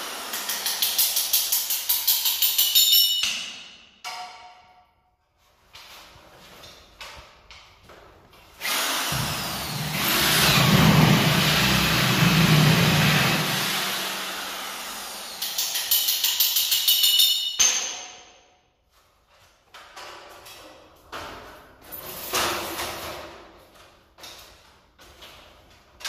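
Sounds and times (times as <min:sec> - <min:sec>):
electric drill cutting ceiling board: 0:00.0 - 0:01.0, 0:08.6 - 0:16.2.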